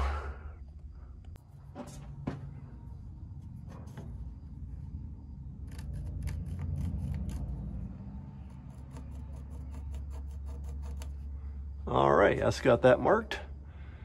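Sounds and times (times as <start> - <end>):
low rumble: 2.5 - 8.8
pencil scratching on metal: 5.6 - 11.4.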